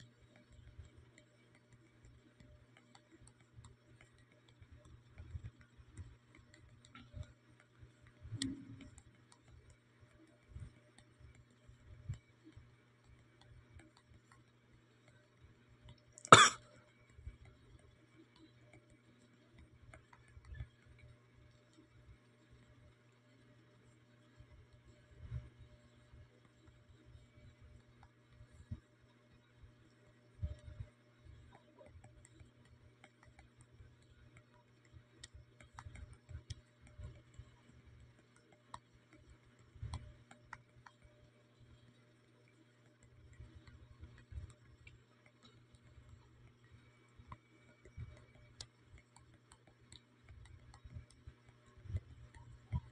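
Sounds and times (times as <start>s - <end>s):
faint low hum: 0.0s - 52.9s
soft ticks: 0.0s - 52.9s
person coughing: 16.3s - 16.6s.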